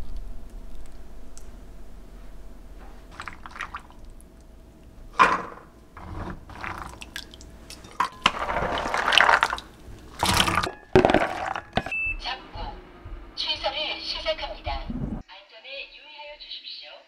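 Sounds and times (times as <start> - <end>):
liquid dripping: 3.0 - 12.2
wooden spoon scooping from pot: 5.2 - 11.9
wet chickpeas squishing: 8.2 - 11.7.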